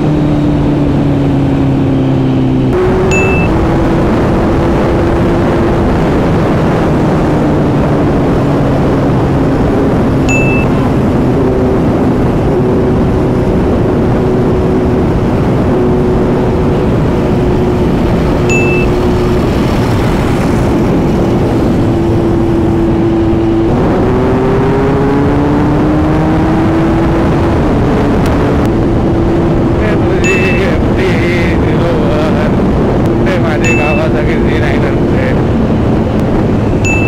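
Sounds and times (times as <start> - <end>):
motorcycle engine running: 0.0 - 6.0, 7.3 - 24.4.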